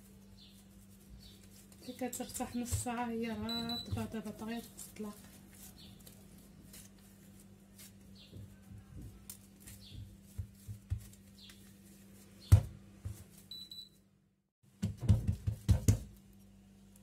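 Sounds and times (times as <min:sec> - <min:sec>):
dough knocks and thuds on counter: 0:09.9 - 0:11.2, 0:12.4 - 0:13.3, 0:14.8 - 0:16.2.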